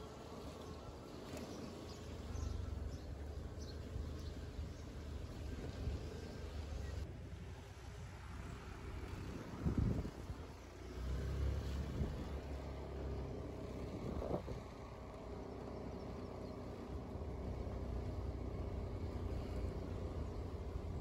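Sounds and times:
motor vehicle rumble: 0.0 - 21.0
wind noise on microphone: 9.2 - 10.6, 11.6 - 12.6, 13.6 - 14.8.

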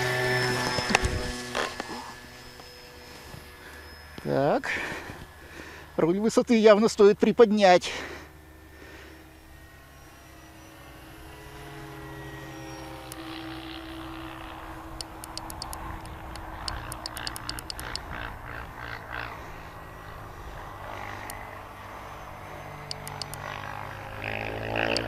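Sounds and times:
model plane propeller drone: 0.0 - 25.0
transmitter switch clicks: 15.0 - 18.0, 22.9 - 23.4.

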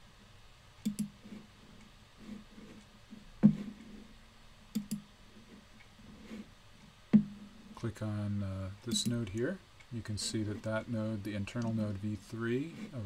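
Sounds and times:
computer mouse clicking: 0.8 - 4.0, 4.7 - 5.1, 8.9 - 9.4
thump: 3.4 - 3.7, 7.1 - 7.4.

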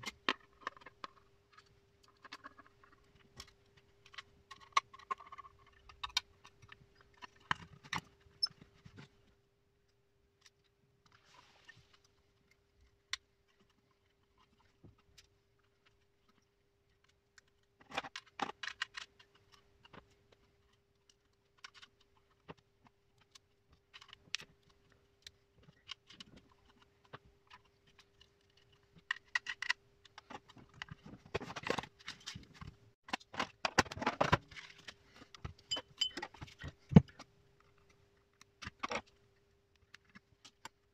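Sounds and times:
metal screws clicking and clinking: 35.7 - 36.4.

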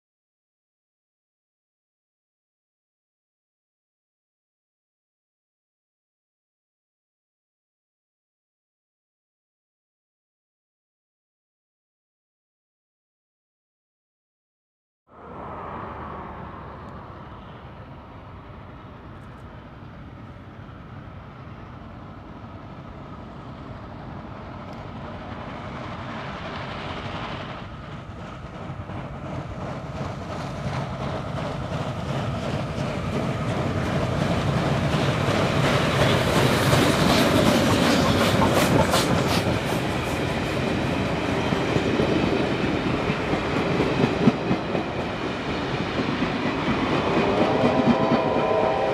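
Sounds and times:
steam locomotive passing: 15.1 - 48.9
wheels clicking over rail joints: 27.9 - 48.2.

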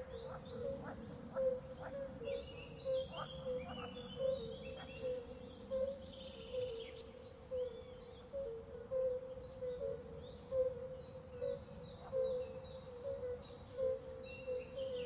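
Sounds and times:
small birds chirping: 0.0 - 10.5.

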